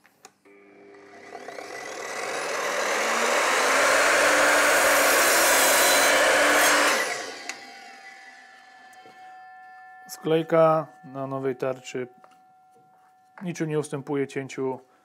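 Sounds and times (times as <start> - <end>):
mitre saw motor: 0.5 - 9.2
saw blade cutting plywood: 1.0 - 8.7.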